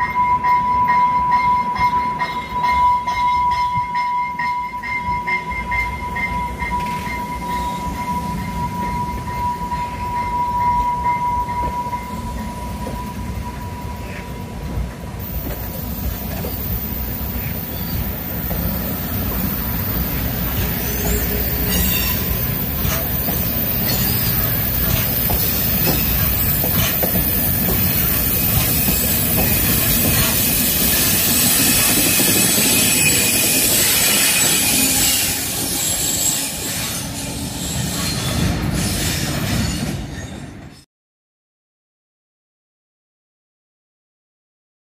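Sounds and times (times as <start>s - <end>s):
train wheels rumbling on rails: 0.1s - 40.8s
thin high squeal: 19.7s - 40.3s.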